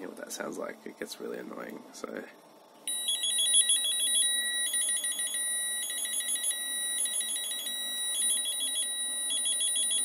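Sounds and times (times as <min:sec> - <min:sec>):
piezo buzzer two-tone alarm: 0:02.9 - 0:10.0.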